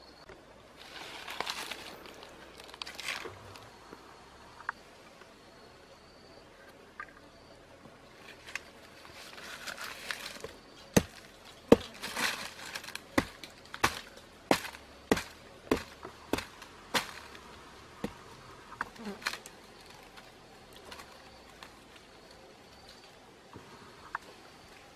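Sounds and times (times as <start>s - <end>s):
crumbling wood crackling: 8.3s - 23.2s
knife chopping rotten log: 11.0s - 17.3s.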